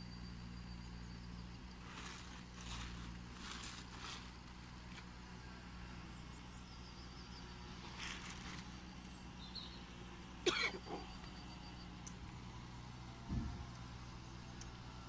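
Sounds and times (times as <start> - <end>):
low background hum: 0.0 - 15.0
man coughing: 10.4 - 11.1.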